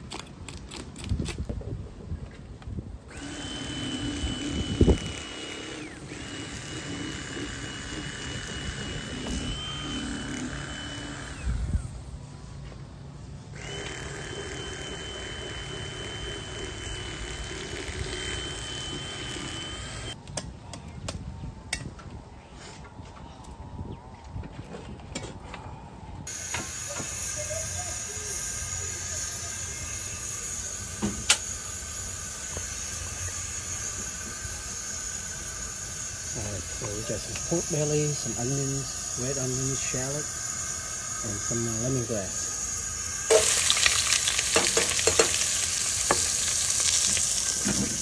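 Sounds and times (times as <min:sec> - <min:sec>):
electric motor whining: 0:03.1 - 0:12.1, 0:13.5 - 0:20.2, 0:26.3 - 0:48.0.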